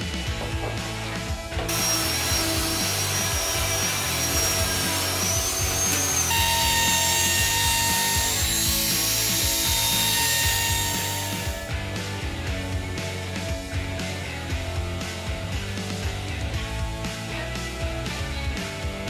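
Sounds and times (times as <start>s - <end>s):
router whining: 0.0s - 11.7s
background music: 0.0s - 19.0s
orbital sander whining: 0.6s - 11.7s.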